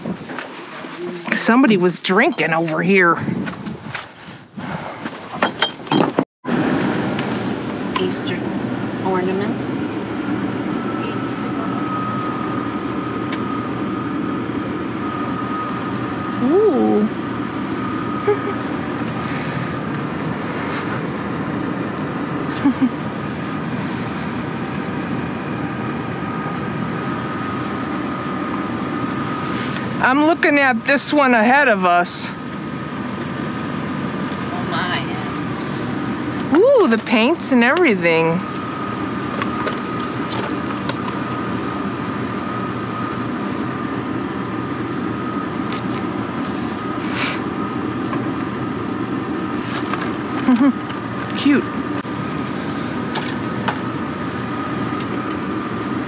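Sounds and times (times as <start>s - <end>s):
low mechanical hum: 0.0s - 56.0s.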